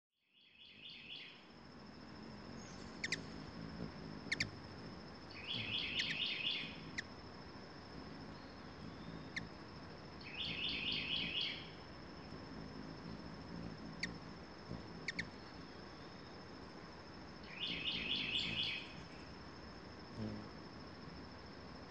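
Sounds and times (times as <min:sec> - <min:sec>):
bird singing repeated notes: 0:02.5 - 0:03.4, 0:04.2 - 0:04.6, 0:05.3 - 0:07.0, 0:10.2 - 0:11.8, 0:15.0 - 0:16.2, 0:17.4 - 0:19.3
birds calling: 0:05.3 - 0:07.0.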